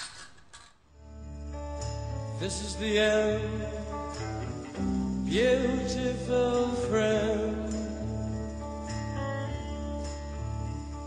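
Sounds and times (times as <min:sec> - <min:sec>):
song with guitar and singing: 0:02.3 - 0:11.0.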